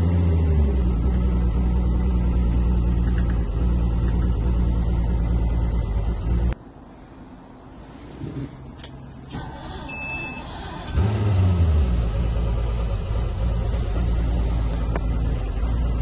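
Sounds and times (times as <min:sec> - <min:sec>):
boat engine starting and idling: 0:09.3 - 0:16.0
high beep: 0:09.9 - 0:10.5.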